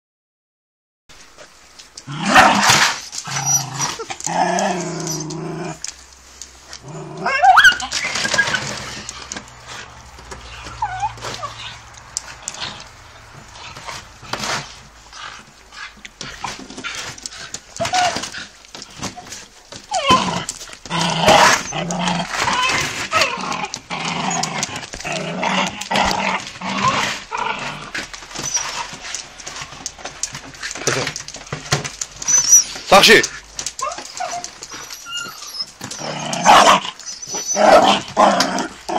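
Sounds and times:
dog growling: 0:02.0 - 0:06.0, 0:06.7 - 0:38.9
dog whining: 0:02.3 - 0:05.9, 0:07.2 - 0:13.3, 0:17.8 - 0:25.1, 0:25.7 - 0:38.9.

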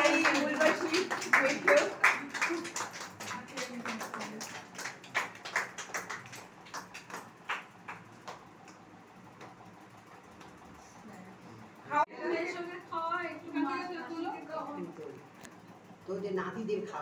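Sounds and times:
people clapping: 0:00.0 - 0:10.6.

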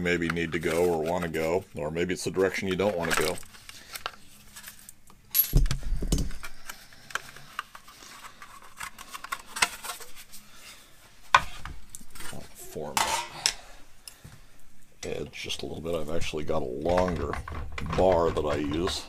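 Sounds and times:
metal tools clinking and rubbing: 0:12.2 - 0:13.7.

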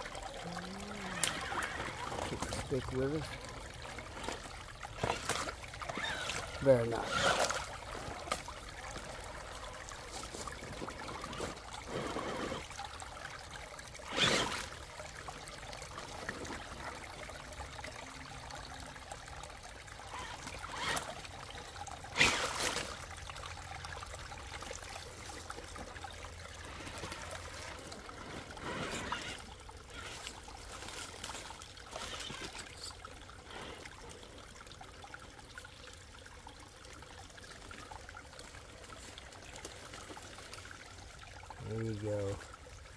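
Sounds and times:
toy car tyres splashing: 0:00.0 - 0:17.7, 0:19.9 - 0:33.9
creek water trickling: 0:00.0 - 0:42.9.

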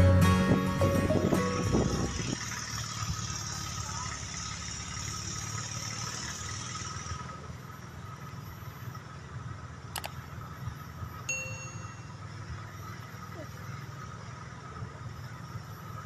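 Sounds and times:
music: 0:00.0 - 0:02.2
low rumble: 0:00.0 - 0:03.4.

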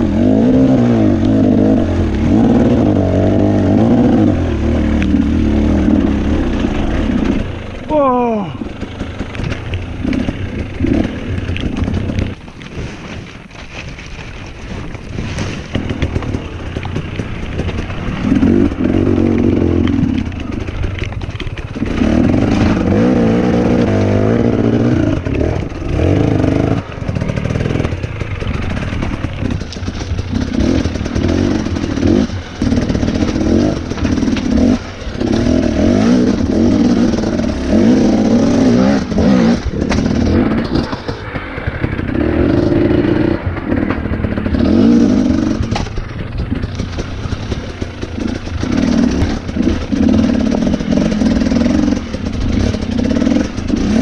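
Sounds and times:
motorcycle engine revving: 0:00.0 - 0:54.0
bike knocking on rocks: 0:08.8 - 0:21.8.

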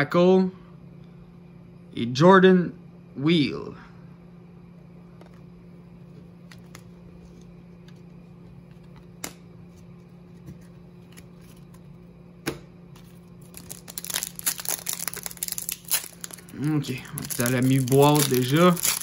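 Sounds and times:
steady low hum: 0:00.0 - 0:19.0
foil wrapper crinkling and tearing: 0:13.0 - 0:19.0.

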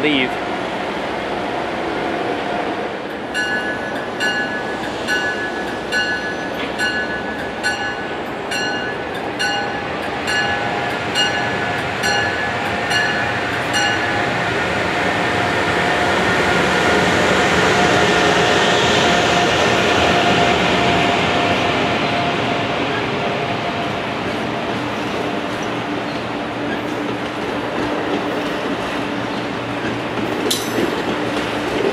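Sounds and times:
train running noise: 0:00.0 - 0:31.9
train bell ringing: 0:03.3 - 0:14.4.

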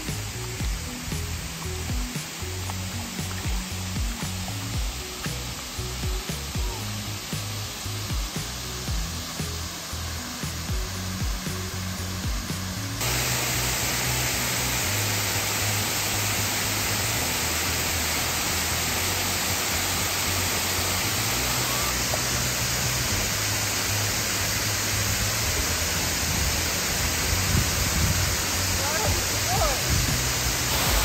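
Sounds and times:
background music: 0:00.0 - 0:31.0
river rushing over rocks: 0:13.0 - 0:31.0.

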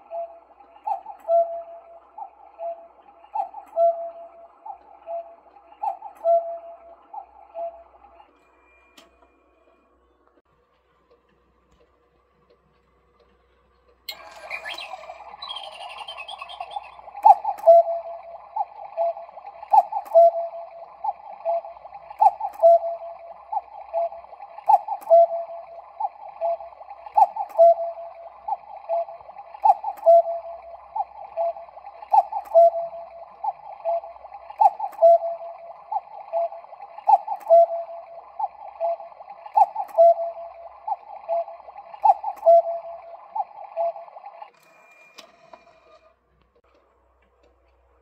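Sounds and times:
two-note cuckoo call: 0:00.0 - 0:08.0, 0:14.1 - 0:44.4
steady background sound: 0:00.0 - 0:45.1.

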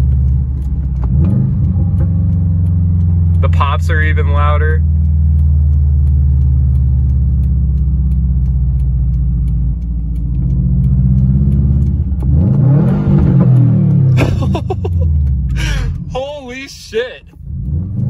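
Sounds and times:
car engine drone inside cabin: 0:00.0 - 0:18.0.

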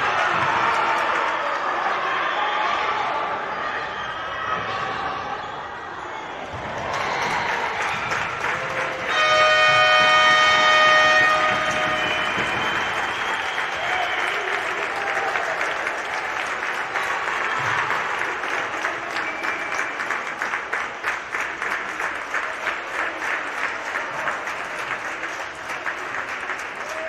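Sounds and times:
spectators applauding and cheering: 0:00.0 - 0:04.7, 0:05.6 - 0:27.0
rhythmic clapping: 0:06.6 - 0:27.0.

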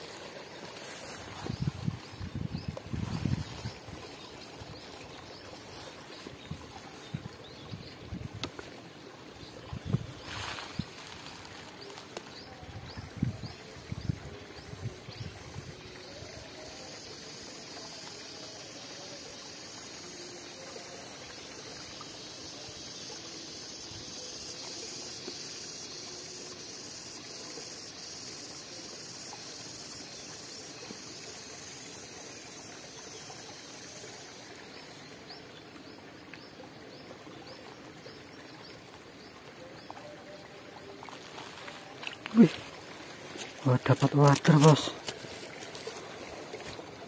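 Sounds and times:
high-pitched insect chorus: 0:00.0 - 0:47.0
short insect chirps: 0:09.4 - 0:12.6, 0:40.3 - 0:47.0.

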